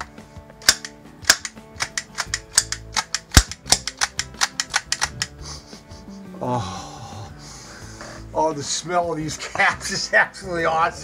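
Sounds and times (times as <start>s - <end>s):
toy cap rifle pops and clicks: 0.0s - 5.4s.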